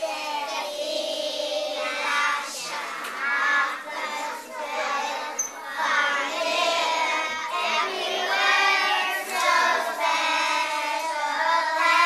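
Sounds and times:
boys singing together: 0.0 - 12.0.

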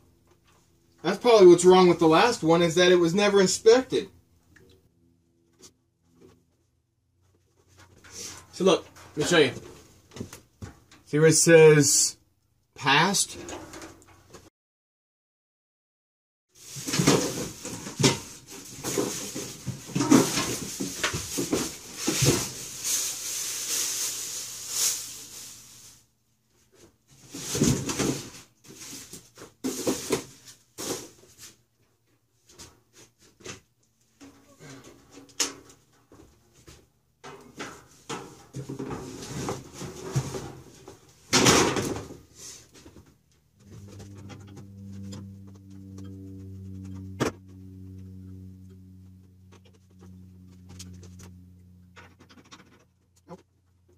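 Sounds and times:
plastic bag crackling: 22.4 - 26.0
steady low humming tone: 43.1 - 53.9.

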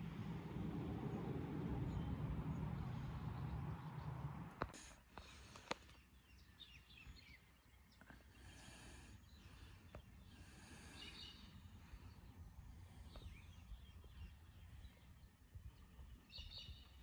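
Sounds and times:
low rumble: 0.0 - 4.8
distant birds chirping: 0.0 - 17.0.

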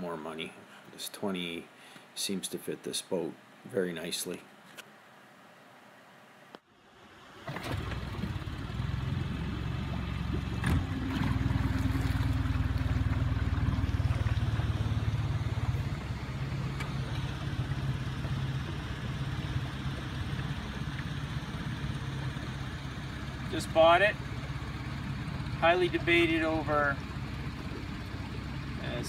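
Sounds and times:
outboard motor running: 7.0 - 29.0.

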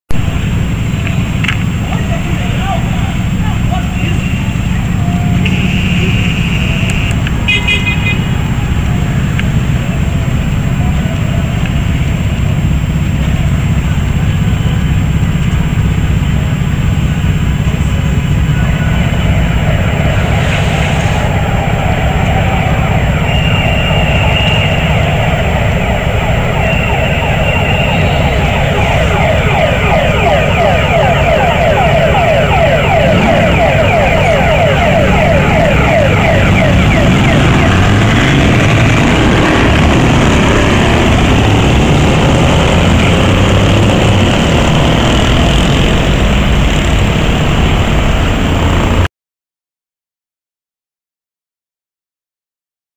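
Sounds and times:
car engines rumbling: 0.1 - 49.1
car horns: 2.0 - 9.1, 18.5 - 31.3.

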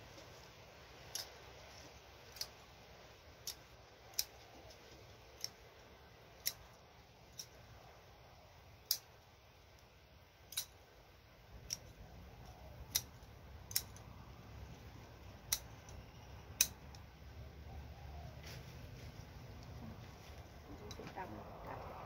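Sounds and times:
scissors snipping stems: 1.0 - 7.7, 8.8 - 9.1, 10.4 - 10.8, 11.5 - 14.2, 15.2 - 17.1.

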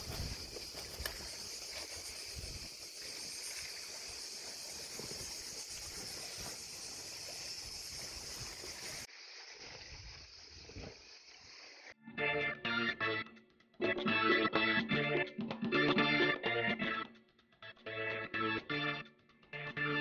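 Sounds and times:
cicadas buzzing: 0.0 - 12.0
music: 12.0 - 20.0.

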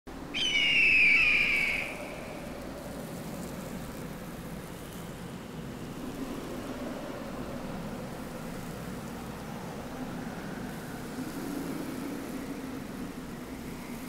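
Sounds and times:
wind hissing: 0.2 - 4.0
hawk screech: 0.4 - 2.5.

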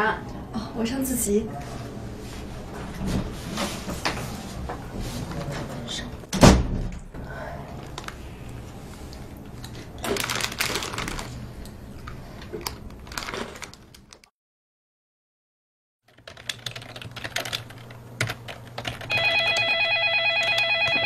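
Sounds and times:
keyboard typing: 16.1 - 21.0
telephone ringing: 19.1 - 21.0.

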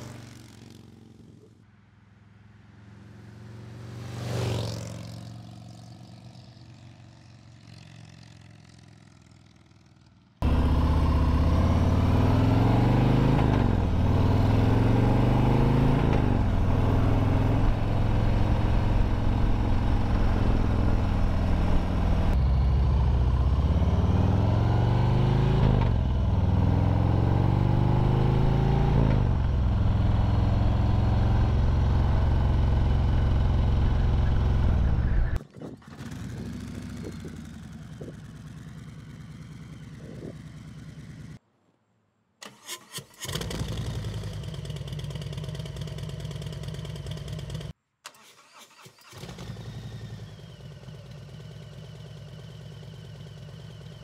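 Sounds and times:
motorcycle engine accelerating through gears: 0.0 - 1.7, 2.3 - 41.4, 43.2 - 47.8, 49.0 - 54.0
vehicle passing by: 0.0 - 8.6.

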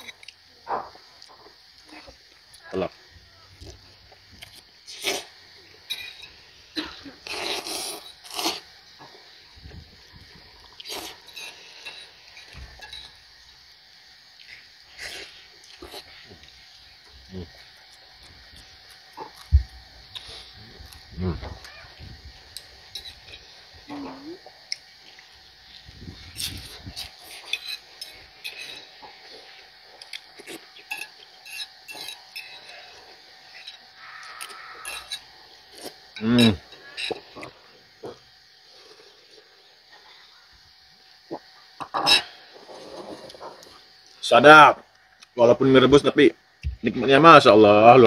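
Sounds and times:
chewing: 17.5 - 21.7, 24.0 - 37.6.

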